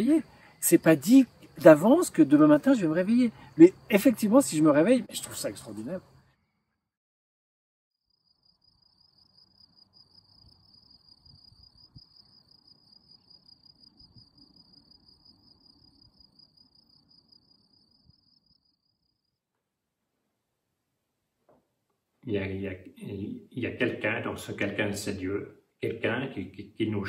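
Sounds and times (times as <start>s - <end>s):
cricket trill: 0.0s - 6.5s, 8.0s - 19.5s.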